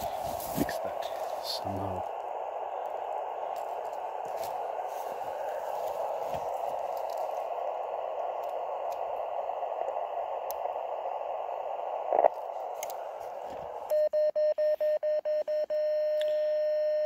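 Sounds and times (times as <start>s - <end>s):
radio receiver hiss: 0.0s - 14.0s
radio click: 2.0s - 14.0s
morse code beeps: 13.9s - 17.0s.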